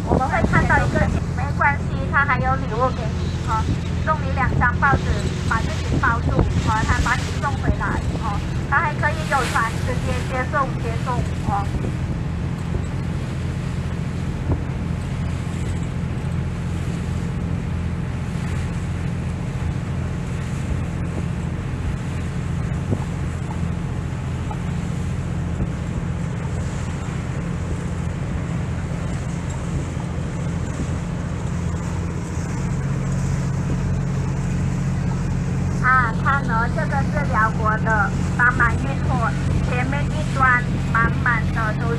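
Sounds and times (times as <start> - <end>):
boat engine running: 0.0 - 41.9
water rushing past: 20.2 - 41.9.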